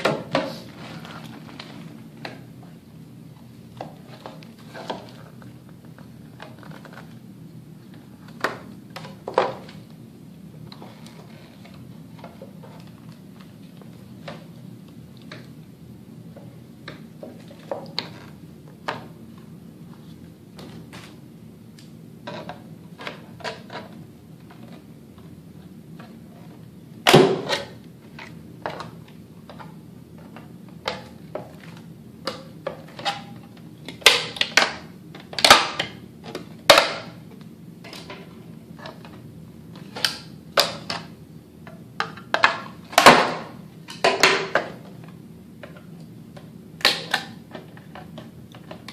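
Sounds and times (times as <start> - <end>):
plastic being handled: 0.0 - 2.8.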